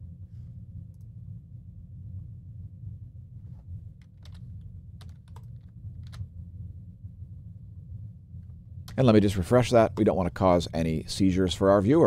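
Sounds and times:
steady low hum: 0.0 - 12.0
computer keys clicking: 4.0 - 4.4, 5.0 - 6.2.

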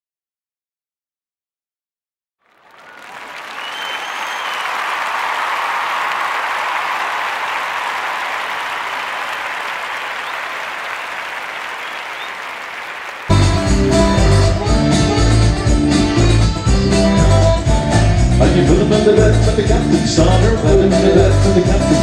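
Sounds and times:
audience applause: 2.4 - 14.7
live band with guitar: 13.3 - 22.0.

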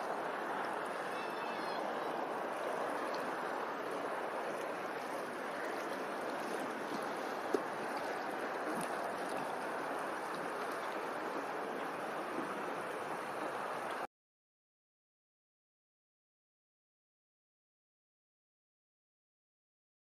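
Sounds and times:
rushing water: 0.0 - 14.1.

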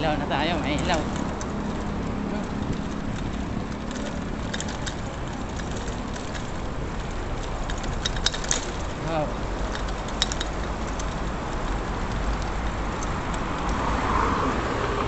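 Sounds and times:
light clicks and rattles: 0.0 - 14.1
bicycle tyres on road: 0.0 - 15.0.

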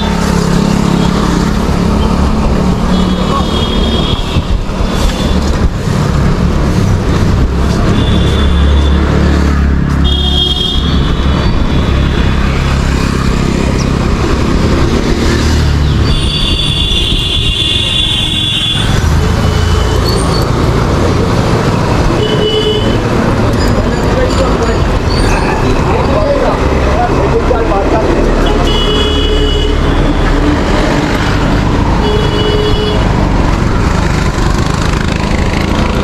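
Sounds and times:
road traffic rumble: 0.0 - 36.0
vehicle horn honks: 10.0 - 11.0, 28.4 - 29.8, 32.0 - 33.1.

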